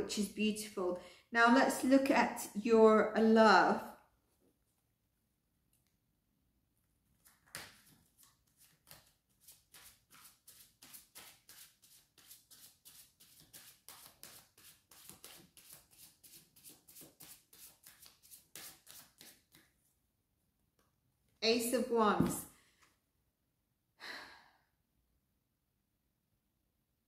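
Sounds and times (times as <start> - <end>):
cards shuffling and slapping: 7.1 - 19.8.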